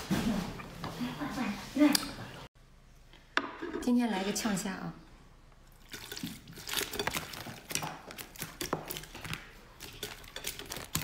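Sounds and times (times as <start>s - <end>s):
sauce splashing and dripping: 5.7s - 9.4s.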